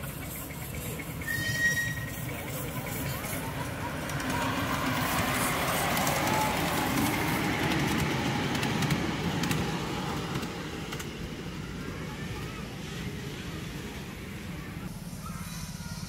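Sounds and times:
model steam train running past: 0.0 - 16.0
wheels rattling on track: 0.0 - 16.0.

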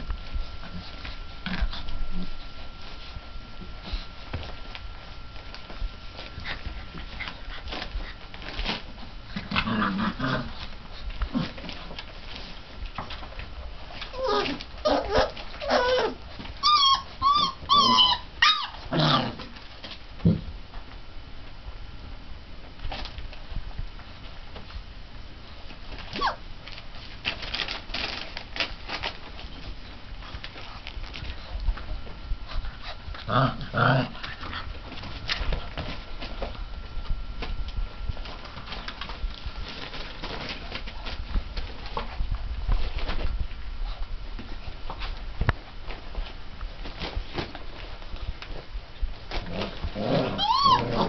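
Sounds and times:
puppies grumbling: 5.4 - 20.4, 25.9 - 26.5, 27.3 - 36.6, 49.2 - 51.0
puppy low cry: 14.1 - 19.5, 26.1 - 26.4, 49.6 - 51.0
puppy yips and squeals: 14.2 - 18.8, 26.1 - 26.4, 50.3 - 51.0.

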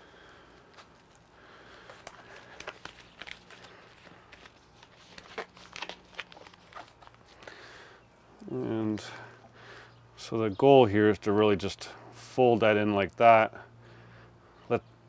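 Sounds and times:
rubber glove snaps and crinkles: 0.5 - 7.5.

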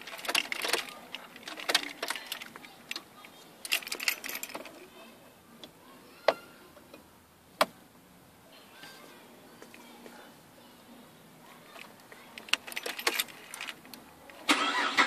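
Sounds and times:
keys jangling: 3.6 - 4.7, 12.4 - 13.9.

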